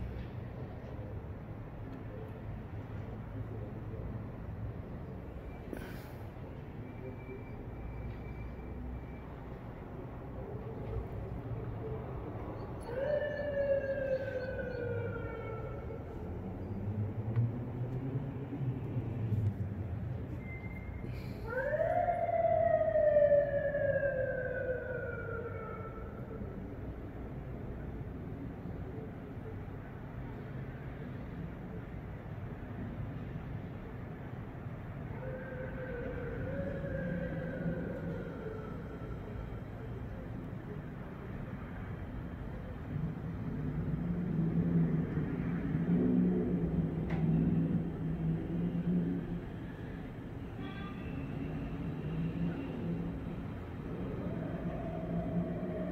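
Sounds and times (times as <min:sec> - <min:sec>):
distant traffic rumble: 0:00.0 - 0:55.9
siren wailing: 0:12.8 - 0:16.1, 0:21.5 - 0:26.4, 0:53.8 - 0:55.9.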